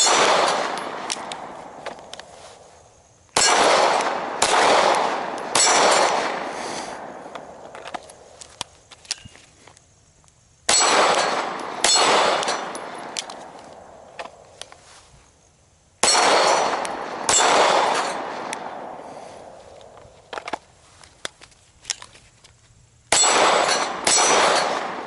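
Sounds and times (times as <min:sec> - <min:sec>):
long gunshot echo: 0:00.0 - 0:01.8, 0:03.4 - 0:07.3, 0:10.7 - 0:13.2, 0:16.0 - 0:19.5, 0:23.1 - 0:25.0
gunshots: 0:00.0 - 0:02.0, 0:03.4 - 0:07.3, 0:10.7 - 0:13.4, 0:16.0 - 0:19.2, 0:23.1 - 0:25.0.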